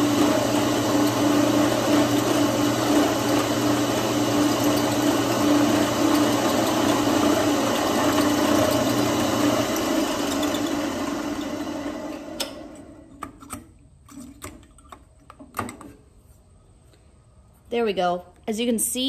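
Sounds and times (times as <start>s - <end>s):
drill press drilling metal: 0.0s - 13.0s.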